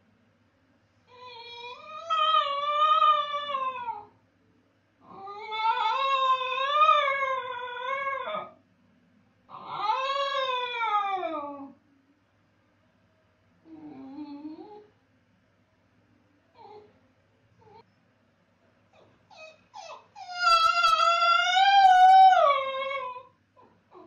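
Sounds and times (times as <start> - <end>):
dog howling: 1.2 - 4.1, 5.1 - 8.6, 9.5 - 11.8, 19.0 - 24.0.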